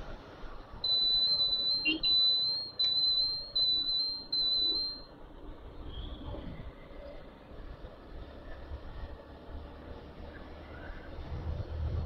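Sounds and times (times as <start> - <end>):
shrill high-pitched tone: 0.9 - 5.1.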